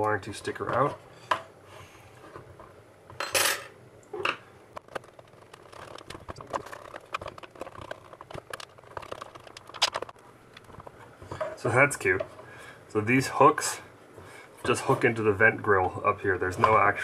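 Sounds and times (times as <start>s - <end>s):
plastic case clicking and rattling: 4.8s - 10.2s
plastic scraping rustle: 4.8s - 11.5s.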